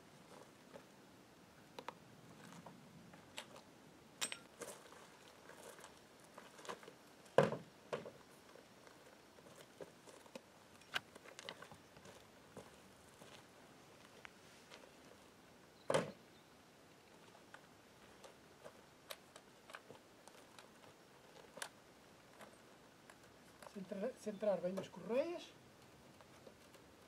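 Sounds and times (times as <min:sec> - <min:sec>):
boots stepping on gravel: 0:08.0 - 0:15.3.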